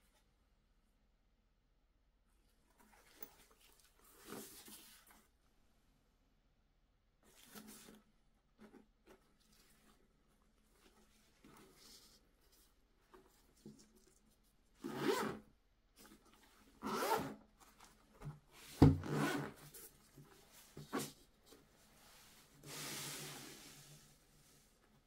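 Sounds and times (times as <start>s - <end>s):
zipper being pulled: 14.8s - 15.4s, 16.8s - 17.4s, 19.0s - 19.6s
thump: 18.8s - 19.0s.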